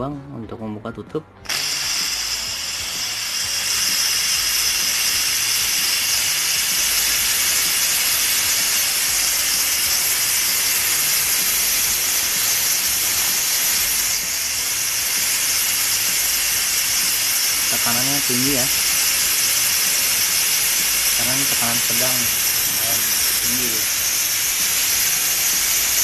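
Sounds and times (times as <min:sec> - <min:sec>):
pressure cooker steam hiss: 0:01.5 - 0:26.0.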